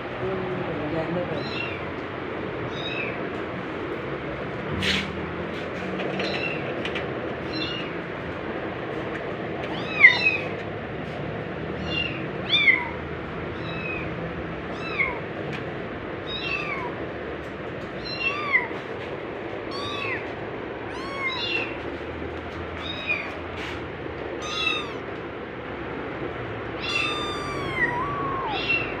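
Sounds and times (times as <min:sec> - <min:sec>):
kitten meowing: 0:01.4 - 0:01.8, 0:02.7 - 0:03.2, 0:09.7 - 0:10.5, 0:11.8 - 0:14.0, 0:14.7 - 0:15.2, 0:16.3 - 0:17.0, 0:18.0 - 0:18.7, 0:19.7 - 0:20.2, 0:20.9 - 0:21.8, 0:22.8 - 0:23.3, 0:24.4 - 0:25.1, 0:26.8 - 0:29.0.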